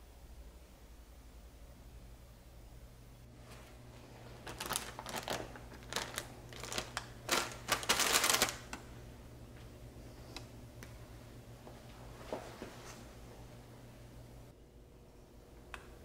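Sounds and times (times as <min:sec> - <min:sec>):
parchment paper rustling: 0:03.4 - 0:08.8.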